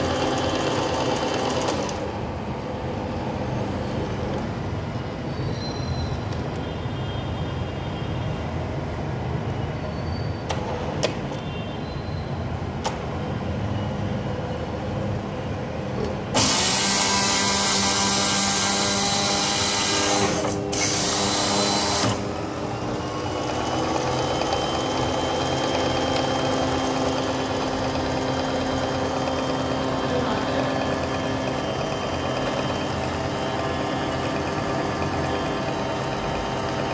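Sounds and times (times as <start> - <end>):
machine humming: 16.3 - 36.9
thin machine whine: 16.3 - 36.9.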